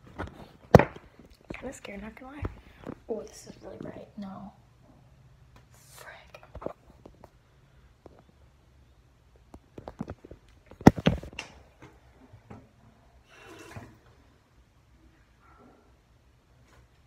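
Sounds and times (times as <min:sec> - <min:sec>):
phone clattering on hard surface: 0:09.8 - 0:11.4.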